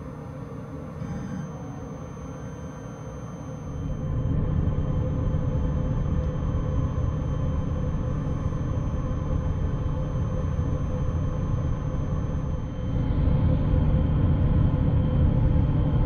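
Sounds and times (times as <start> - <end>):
thin high whine: 0.0 - 5.6.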